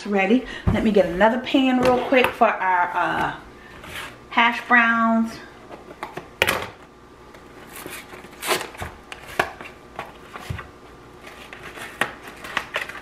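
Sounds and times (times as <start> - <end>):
cardboard packaging rustling: 7.6 - 13.0.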